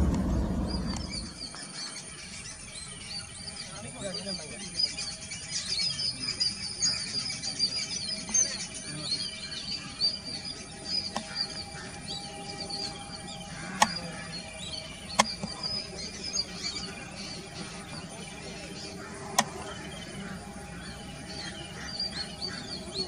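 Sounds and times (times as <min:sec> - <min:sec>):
jet engines whining: 0:00.0 - 0:01.7, 0:07.4 - 0:23.0
small birds chirping: 0:00.0 - 0:23.0
sharp clicks: 0:13.6 - 0:14.0, 0:15.1 - 0:15.8, 0:19.3 - 0:19.8.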